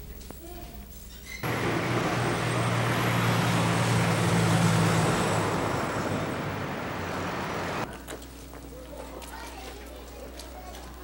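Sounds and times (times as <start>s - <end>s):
road noise: 1.4s - 7.9s
vehicle engine humming: 1.4s - 7.9s.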